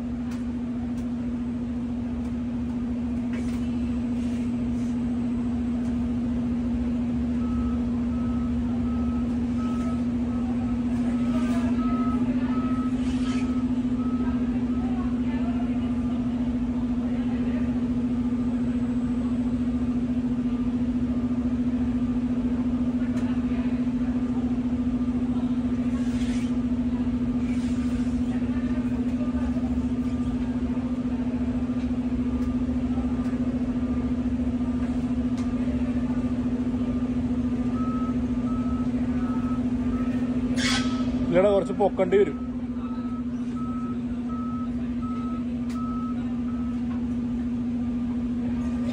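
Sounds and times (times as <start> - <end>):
heavy vehicle engine idling: 0.0 - 48.9
reversing alarm beeping: 7.3 - 15.0, 37.0 - 46.9.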